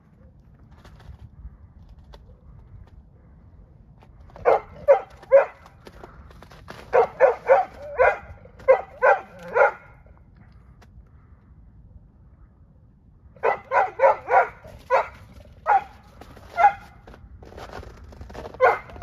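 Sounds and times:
dog barking: 4.4s - 5.7s, 6.9s - 10.0s, 13.4s - 16.9s, 18.6s - 19.0s.

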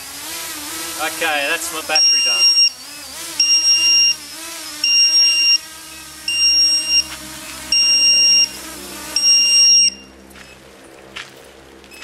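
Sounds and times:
low-battery alarm beeping: 2.0s - 2.8s, 3.4s - 4.2s, 4.8s - 5.7s, 6.3s - 7.1s, 7.7s - 10.1s.

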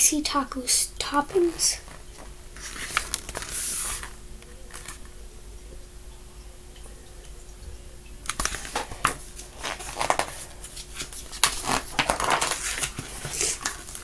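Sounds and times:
book pages rustling: 1.4s - 5.1s, 8.3s - 14.0s.

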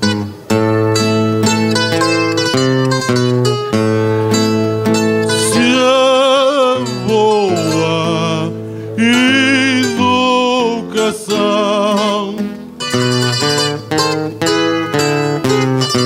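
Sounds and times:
acoustic guitar chords: 0.0s - 16.0s
viola da terra: 0.2s - 16.0s
man singing with vibrato: 5.1s - 16.0s.

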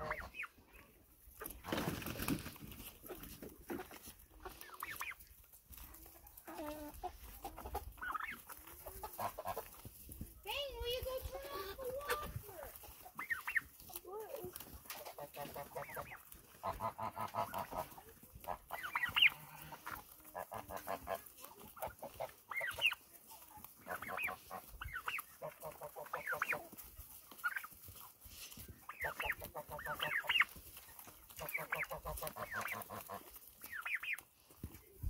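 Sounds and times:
turkey poults peeping: 0.0s - 10.4s, 11.0s - 35.0s
rapid low clucking calls: 14.8s - 21.2s, 28.6s - 30.6s, 31.3s - 34.3s.

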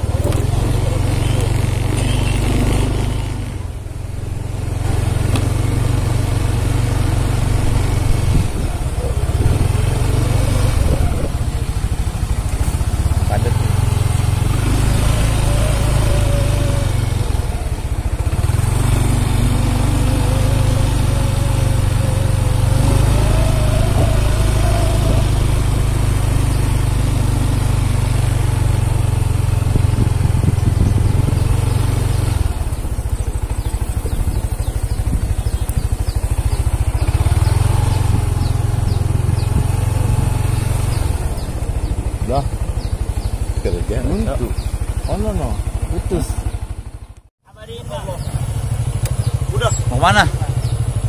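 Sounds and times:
vehicle engine running: 0.0s - 51.0s
wind on microphone: 7.6s - 12.0s, 20.7s - 26.2s, 29.5s - 32.5s.

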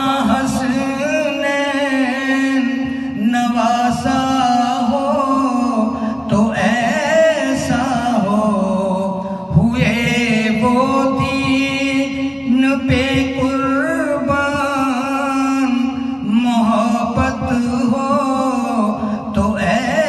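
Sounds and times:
man singing devotional chant: 0.0s - 20.0s.

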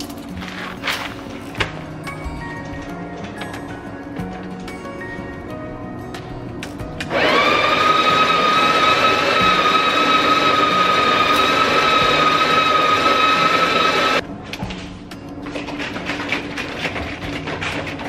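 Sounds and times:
coffee grinder motor whine: 7.1s - 14.2s.

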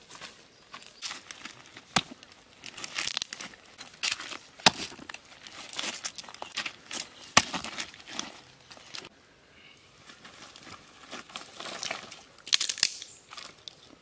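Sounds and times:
pebbles crunching and clattering: 0.8s - 9.1s.

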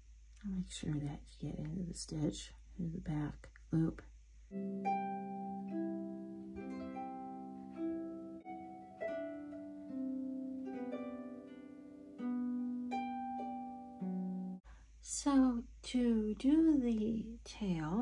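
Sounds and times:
plucked string melody: 4.5s - 14.6s.

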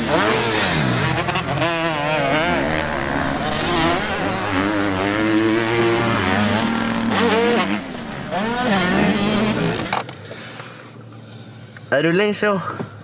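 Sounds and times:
motocross bike engines revving: 0.0s - 10.1s.

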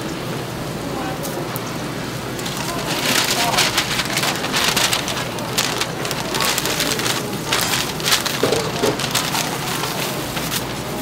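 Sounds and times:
newspaper rustling and crinkling: 2.4s - 11.0s.

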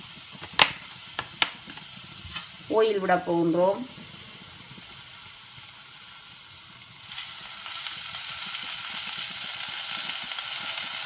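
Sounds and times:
food sizzling in a saucepan: 0.0s - 11.0s.

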